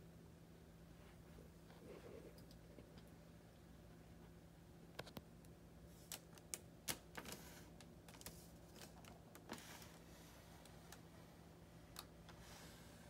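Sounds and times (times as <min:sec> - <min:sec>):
low room hum: 0:00.0 - 0:13.0
cellophane bags crinkling: 0:06.0 - 0:10.0.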